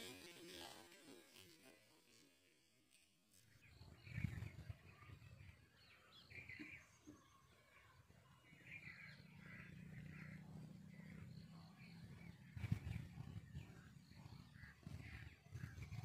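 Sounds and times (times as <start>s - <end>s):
small birds chirping: 3.3s - 16.0s.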